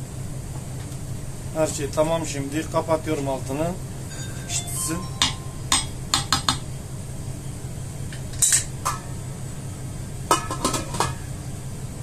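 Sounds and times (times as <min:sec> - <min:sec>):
wooden spoon knocking on pot: 0:05.2 - 0:06.6
metal lid clanking: 0:10.3 - 0:11.2.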